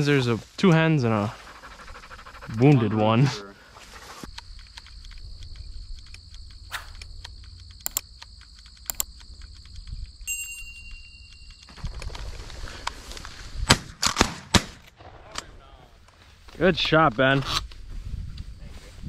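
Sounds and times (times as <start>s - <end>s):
shotgun shots: 13.7s - 15.5s.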